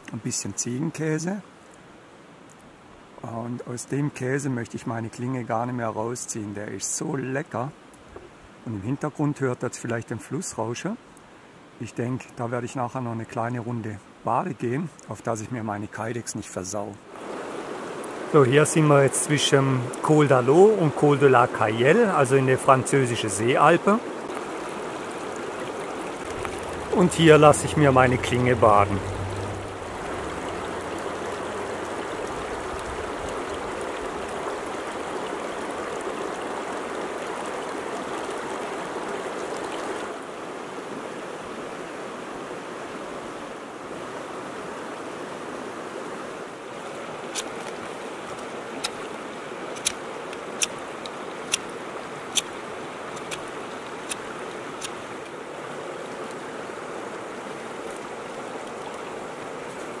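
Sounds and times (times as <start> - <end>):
river water rushing over stones: 0.0 - 60.0
knife cutting dry wood clicks: 49.8 - 51.7, 52.3 - 52.5, 53.1 - 55.3.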